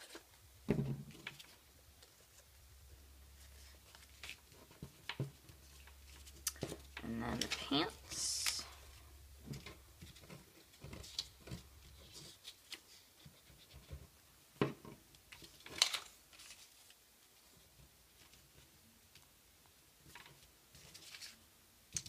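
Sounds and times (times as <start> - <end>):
paper rustling and tapping: 3.5 - 8.6, 9.4 - 14.0, 14.6 - 17.0.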